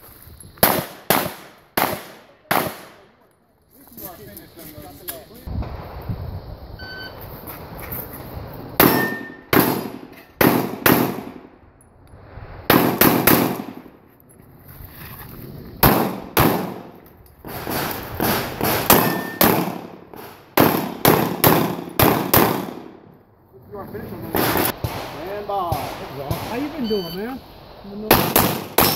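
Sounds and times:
pistol shots echoing: 0:00.6 - 0:03.1, 0:08.8 - 0:11.4, 0:12.7 - 0:13.8, 0:15.8 - 0:17.0, 0:18.2 - 0:23.1, 0:24.3 - 0:26.8, 0:28.1 - 0:28.9.

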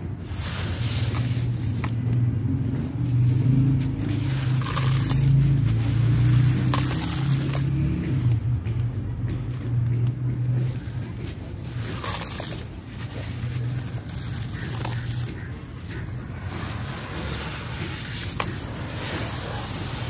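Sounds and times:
hands sloshing wet sand in water: 0:00.2 - 0:02.2
small clicks of grit: 0:10.0 - 0:20.0.

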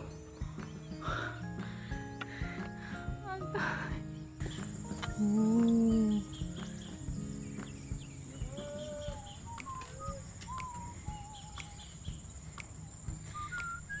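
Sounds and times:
farm animals calling: 0:08.0 - 0:10.2.

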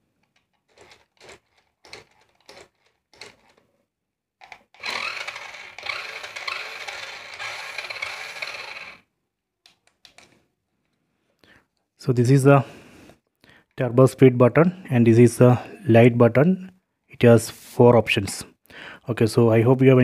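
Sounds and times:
toy motor whining: 0:00.7 - 0:03.6, 0:04.4 - 0:09.1.

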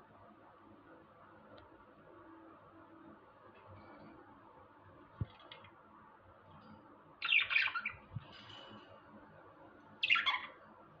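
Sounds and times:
budgerigars chattering: 0:10.0 - 0:10.6.

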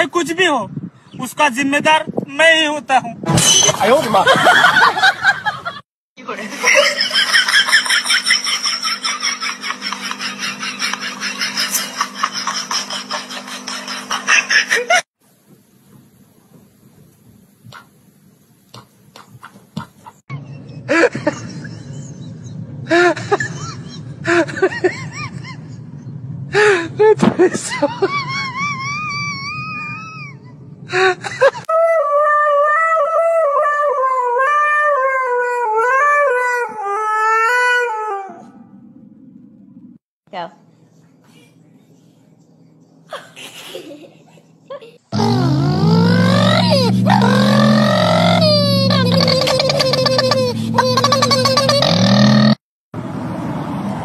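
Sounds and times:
high-pitched laughter: 0:06.6 - 0:15.1, 0:27.0 - 0:31.8, 0:43.1 - 0:52.5
dog howling: 0:45.4 - 0:49.6.

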